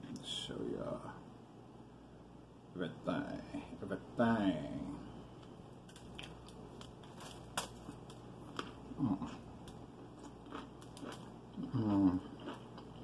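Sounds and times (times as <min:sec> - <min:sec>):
chewing with wet clicks: 0:08.5 - 0:13.0
person humming: 0:11.6 - 0:12.2.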